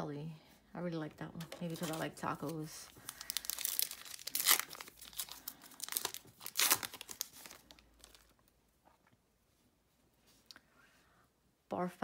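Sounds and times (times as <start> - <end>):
foil wrapper ripping and crinkling: 1.6 - 8.4.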